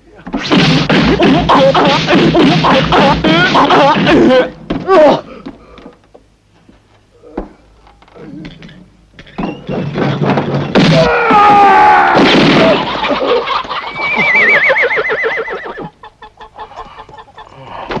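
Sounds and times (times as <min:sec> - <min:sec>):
knocks and cries: 0:08.4 - 0:13.7
horse whinnying: 0:13.9 - 0:15.9.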